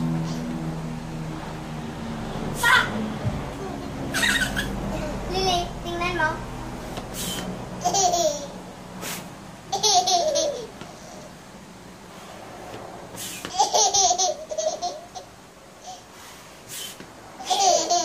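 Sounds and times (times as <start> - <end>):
toddler giggling: 3.5 - 5.3, 7.8 - 8.6, 9.7 - 11.3, 13.5 - 16.0, 17.4 - 18.0.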